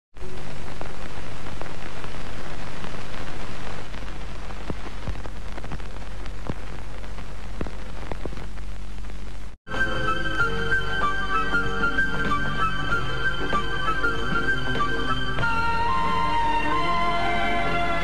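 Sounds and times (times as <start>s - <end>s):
film crackle pops and clicks: 0.2s - 9.6s
film hiss: 0.2s - 18.0s.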